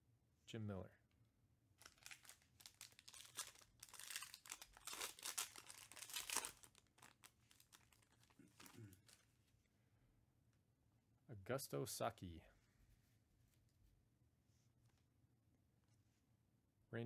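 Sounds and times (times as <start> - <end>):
foil wrapper tearing and crinkling: 1.8 - 9.2.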